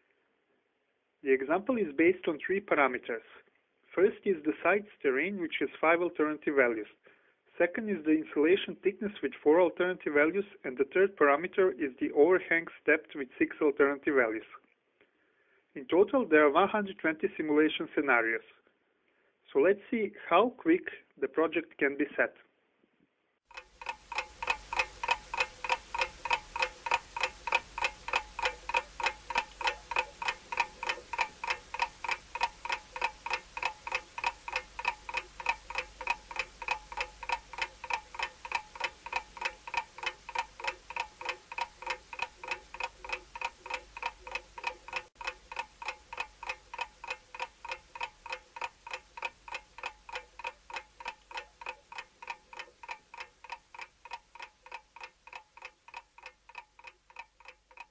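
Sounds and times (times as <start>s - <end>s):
stopwatch ticking: 23.5s - 57.9s.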